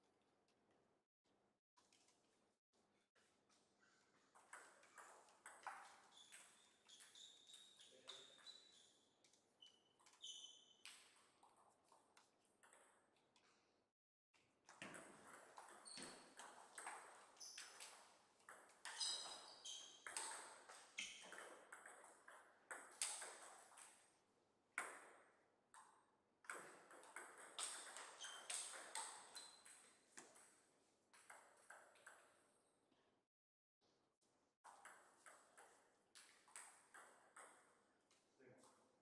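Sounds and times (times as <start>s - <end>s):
table tennis ball pinging: 4.4s - 7.5s, 14.8s - 23.7s.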